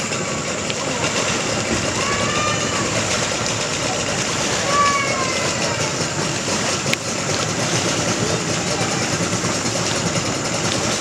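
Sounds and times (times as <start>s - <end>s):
engine idling: 0.0s - 11.0s.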